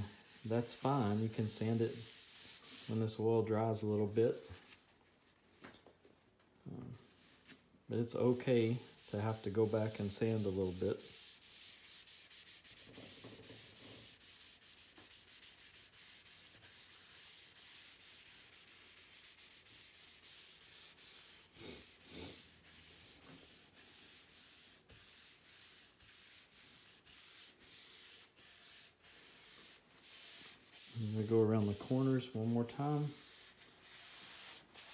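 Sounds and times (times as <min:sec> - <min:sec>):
rag rubbing cutting board: 0:00.0 - 0:03.1, 0:08.2 - 0:34.9.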